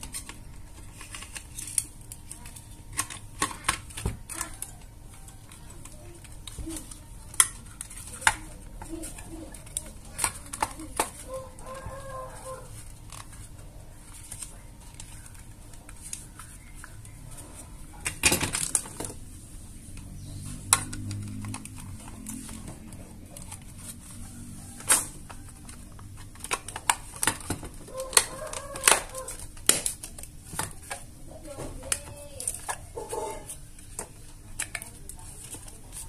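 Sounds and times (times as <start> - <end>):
chicken clucking: 11.2 - 12.8, 32.9 - 33.5.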